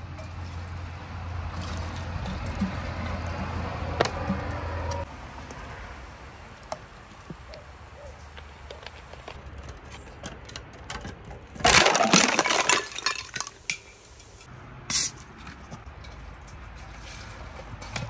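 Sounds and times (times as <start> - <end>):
glass shattering: 11.6 - 14.0
glass shards clinking: 11.6 - 14.5.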